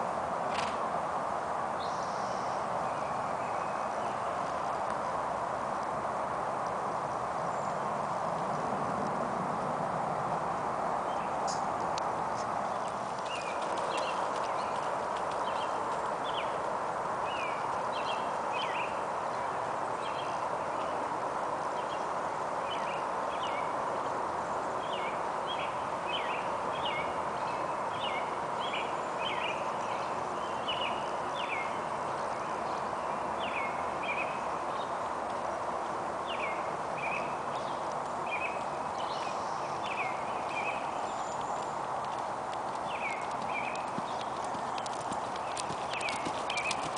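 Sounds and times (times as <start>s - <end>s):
steady outdoor hiss: 0.0s - 46.9s
horse hooves on sand: 2.5s - 24.0s, 34.1s - 46.9s
small birds chirping: 11.0s - 46.9s.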